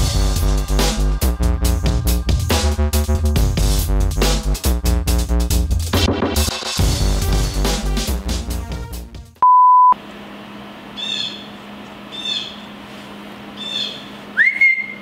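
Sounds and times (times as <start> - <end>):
electronic music: 0.0 - 8.7
beep tone: 9.4 - 10.0
rising whistle: 14.4 - 15.0.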